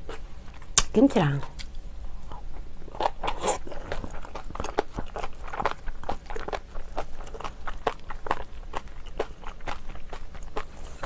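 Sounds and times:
wet chewing mouth clicks: 3.0 - 11.0.

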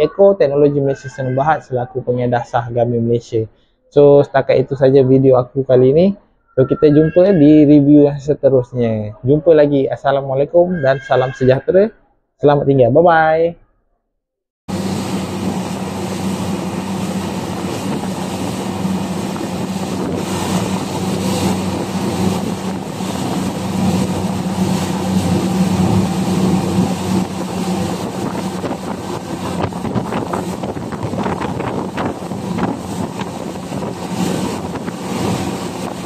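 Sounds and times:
motorboat engine running: 14.7 - 36.0
wind buffeting microphone: 14.7 - 36.0.

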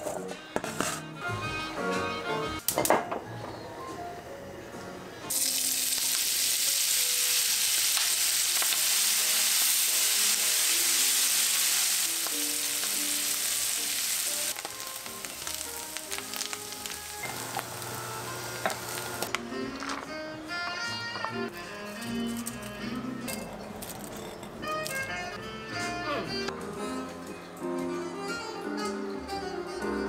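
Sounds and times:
soft background music: 0.0 - 30.0
oil sizzling in a frying pan: 5.3 - 19.3.

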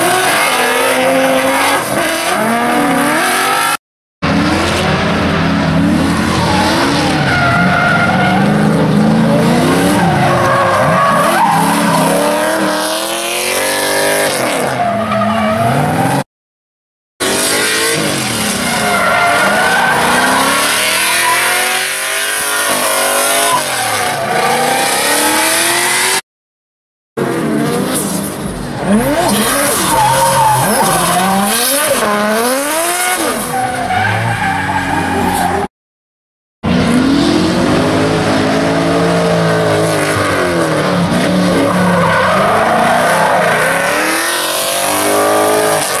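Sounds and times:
car engines revving: 0.0 - 16.3, 17.2 - 26.2, 27.2 - 35.7, 36.7 - 46.0
tyres screeching: 28.9 - 32.2.

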